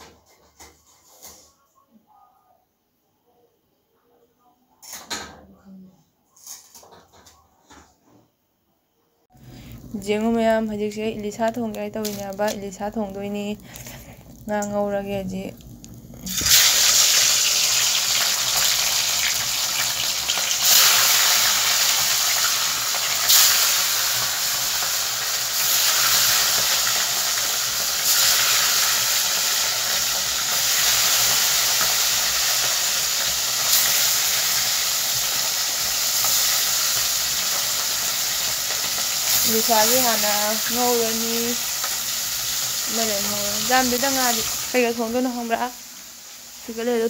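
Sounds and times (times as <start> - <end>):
fish sizzling in hot oil: 10.7 - 47.0.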